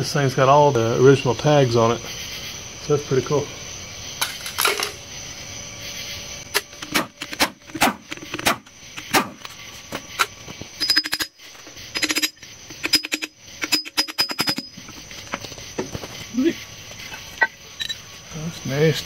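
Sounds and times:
impact wrench rattling: 0:10.2 - 0:15.4
metallic clicks and knocks: 0:10.2 - 0:15.5.

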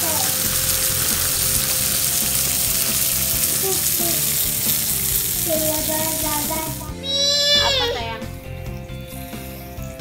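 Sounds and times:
prawns sizzling on grill: 0:00.0 - 0:10.0.

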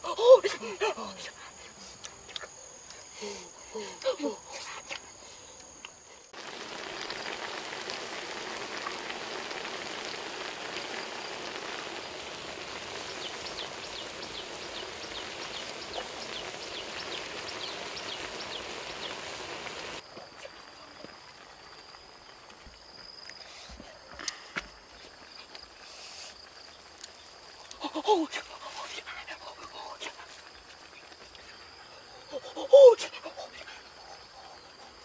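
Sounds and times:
food sizzling in a pan: 0:06.3 - 0:23.6, 0:25.0 - 0:29.0.

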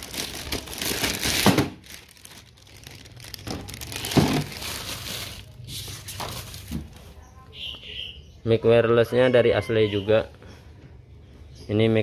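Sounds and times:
plastic bag crinkling: 0:00.0 - 0:07.1.

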